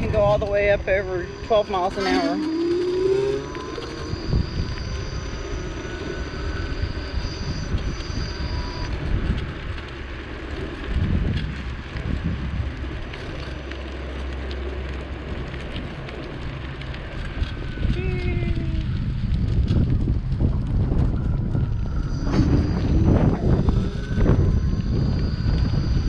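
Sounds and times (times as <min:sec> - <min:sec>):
faint high whines: 0:00.0 - 0:10.9, 0:17.0 - 0:26.0
wind buffeting microphone: 0:00.0 - 0:26.0.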